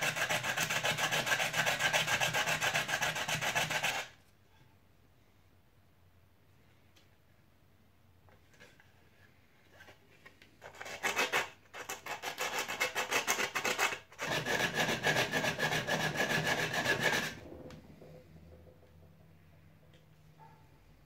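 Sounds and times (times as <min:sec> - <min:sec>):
hand sanding plastic: 0:00.0 - 0:04.2, 0:10.6 - 0:18.0.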